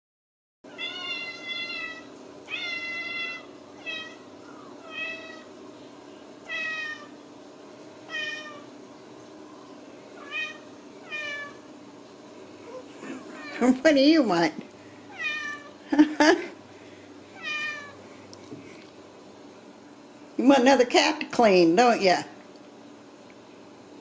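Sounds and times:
cat meowing: 0.7 - 5.5, 6.5 - 7.1, 8.1 - 8.7, 10.2 - 11.6, 15.1 - 15.8, 17.4 - 18.0.

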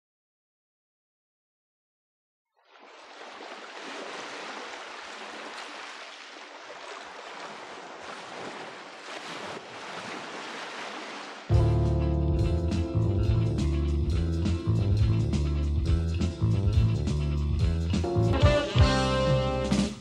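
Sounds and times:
ocean surf on shore: 2.7 - 11.5
guitar and bass music: 11.5 - 20.0.

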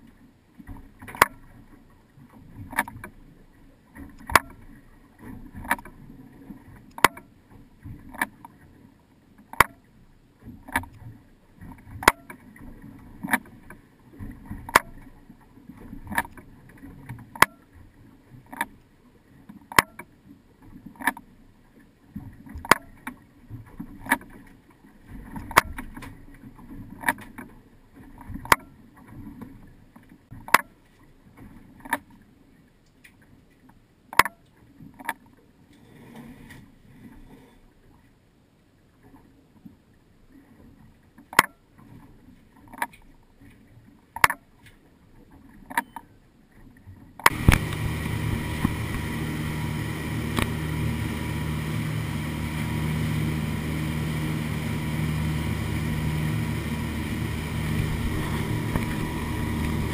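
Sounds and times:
water and wind rushing: 0.0 - 59.9
sharp clicks: 47.2 - 47.9, 50.3 - 50.6.

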